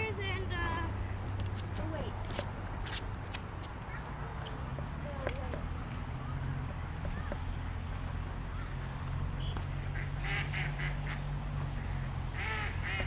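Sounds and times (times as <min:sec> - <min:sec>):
ducks quacking: 0:09.8 - 0:11.2, 0:11.8 - 0:13.0.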